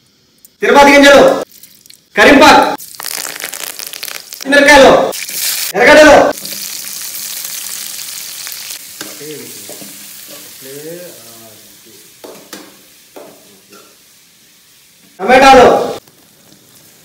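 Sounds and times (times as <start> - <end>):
vegetables sizzling in hot oil: 2.8 - 15.2, 15.9 - 17.0.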